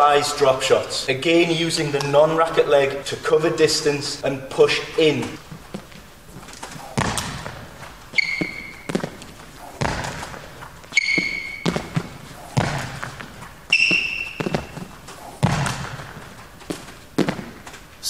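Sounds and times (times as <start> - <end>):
shoes squeaking on hall floor: 3.7 - 18.0
feet thudding: 5.2 - 18.0.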